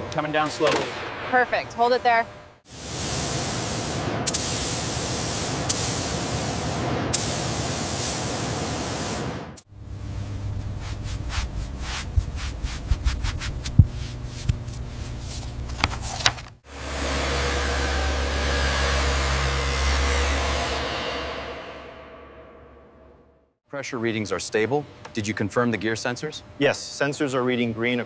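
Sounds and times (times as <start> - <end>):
paint spray guns hissing: 2.7 - 9.3
low hum: 9.7 - 23.5.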